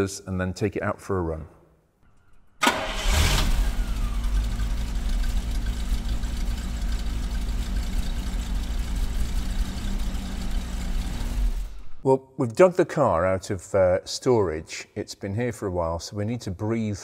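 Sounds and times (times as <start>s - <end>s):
car engine starting and idling: 2.1s - 12.0s.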